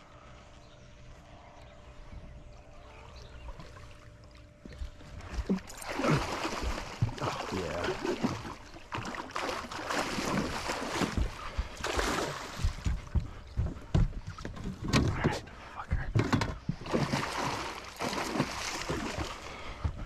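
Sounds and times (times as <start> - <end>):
fish splashing water: 4.9 - 13.2, 16.8 - 19.7
short low thumps: 11.1 - 16.9.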